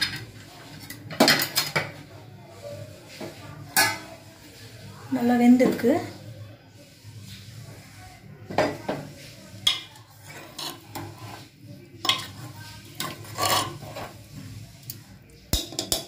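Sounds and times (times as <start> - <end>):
metal ladle scraping a pot: 0.0 - 1.8, 2.8 - 4.6, 8.5 - 16.0.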